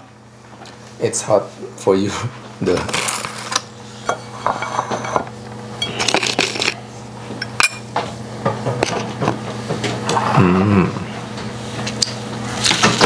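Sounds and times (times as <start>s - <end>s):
steady low hum: 0.0s - 13.0s
plates and cutlery clinking: 2.9s - 6.8s.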